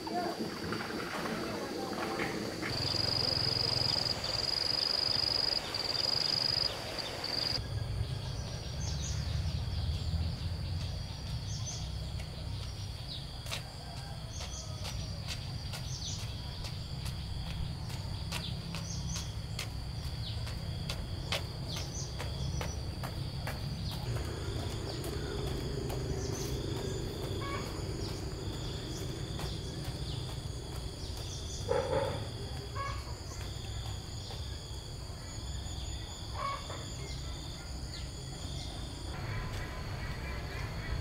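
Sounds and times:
birds chirping: 0.1s - 41.0s
low rumble: 23.0s - 31.6s.

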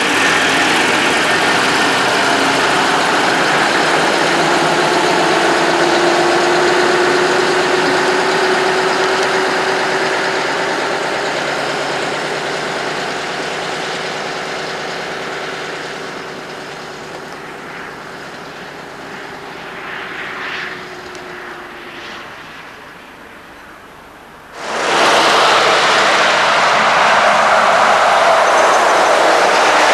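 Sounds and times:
road noise: 0.0s - 29.9s
truck engine drone: 0.0s - 29.9s.

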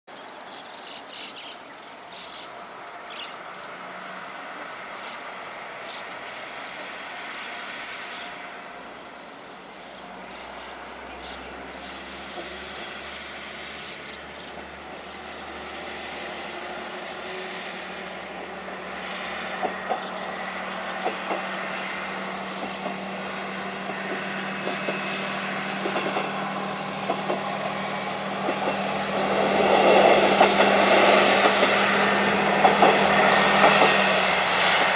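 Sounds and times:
diesel railcar engine droning: 0.2s - 34.9s
wheels clicking over rail joints: 25.7s - 34.2s.

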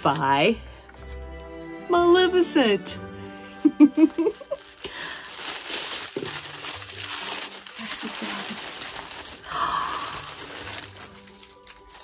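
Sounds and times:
wrapping paper crinkling: 3.6s - 12.0s.

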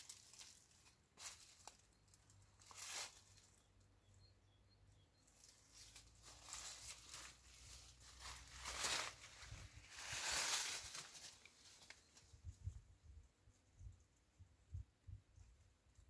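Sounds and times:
leaves rustling in light breeze: 0.0s - 3.7s, 5.3s - 16.0s.

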